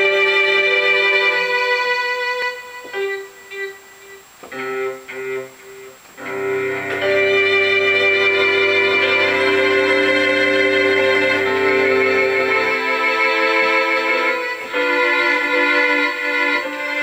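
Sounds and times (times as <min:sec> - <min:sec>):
synthesized string keyboard: 0:00.0 - 0:17.0
low bass note: 0:06.2 - 0:12.8.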